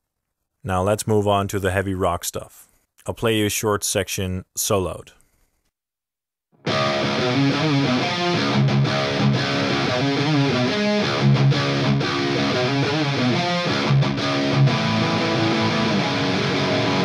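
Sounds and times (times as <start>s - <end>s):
distorted electric guitar rock rhythm: 6.6s - 17.0s.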